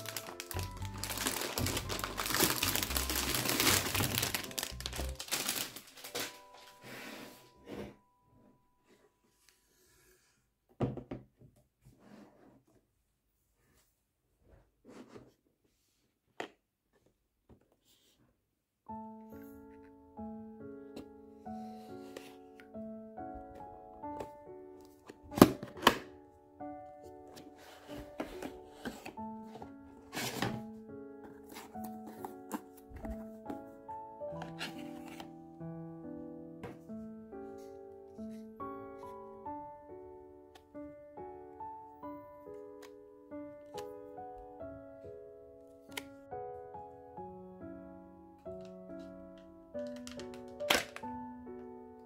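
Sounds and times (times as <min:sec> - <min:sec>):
plastic bag crinkling: 0:00.0 - 0:06.8
soft background music: 0:00.0 - 0:10.0, 0:18.9 - 0:52.0
knock: 0:10.8 - 0:11.3.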